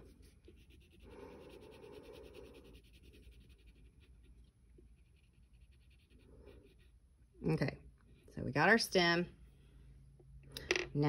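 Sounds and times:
crayon scratching on paper: 0:00.0 - 0:07.0.

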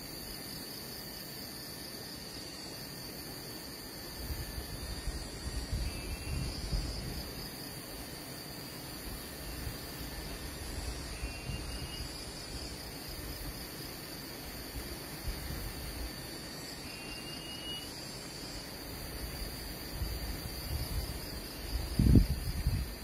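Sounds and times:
insects droning: 0:00.0 - 0:23.0
wind rumbling on microphone: 0:04.1 - 0:07.6, 0:08.9 - 0:13.8, 0:14.6 - 0:16.2, 0:18.9 - 0:23.0.

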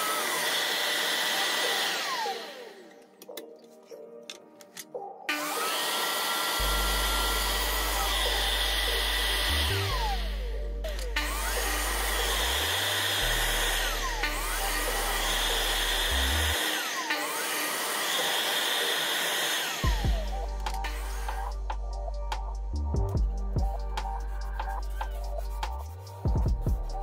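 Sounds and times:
miter saw motor whining: 0:00.0 - 0:03.0, 0:05.3 - 0:21.8
background music with bass line: 0:06.5 - 0:16.6, 0:19.8 - 0:27.0.

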